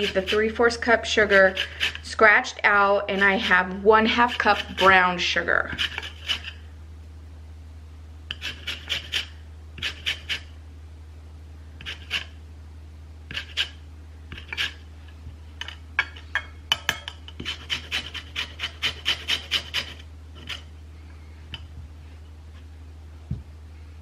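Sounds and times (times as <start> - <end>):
grater rasping on lemon: 0.0 - 2.2, 3.1 - 5.0, 5.7 - 6.6, 8.3 - 10.5, 11.8 - 12.4, 13.3 - 14.8, 17.4 - 20.7
low steady hum: 0.0 - 24.0.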